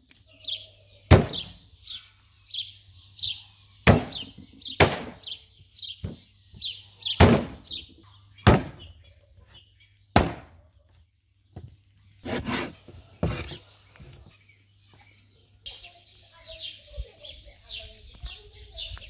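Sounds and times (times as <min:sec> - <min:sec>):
small birds chirping: 0:00.0 - 0:19.0
cleaver chopping on wooden board: 0:03.9 - 0:05.2, 0:07.2 - 0:07.6, 0:08.5 - 0:08.8, 0:10.2 - 0:10.5.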